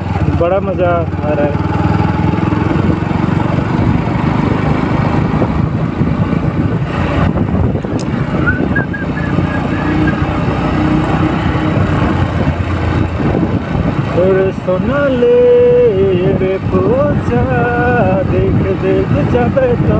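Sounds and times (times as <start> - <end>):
motorcycle engine running: 0.0 - 19.9
wind rumble on microphone: 0.0 - 19.9.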